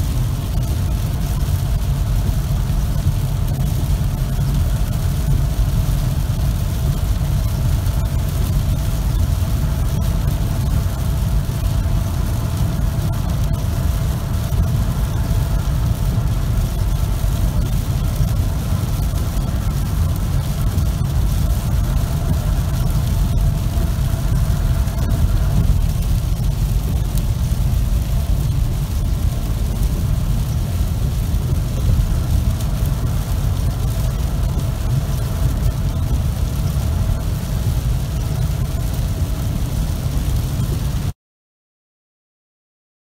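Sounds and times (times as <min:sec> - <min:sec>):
engine and tyres on wet road: 0:00.0 - 0:41.2
hiss of rain and spray: 0:00.0 - 0:41.2.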